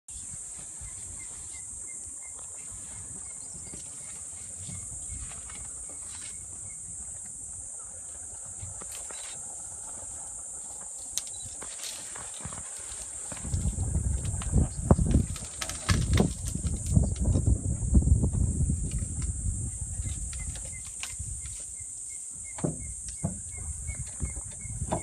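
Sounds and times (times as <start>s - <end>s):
insects droning: 0.1s - 25.0s
branches snapping and rustling: 10.8s - 17.5s, 18.8s - 21.8s.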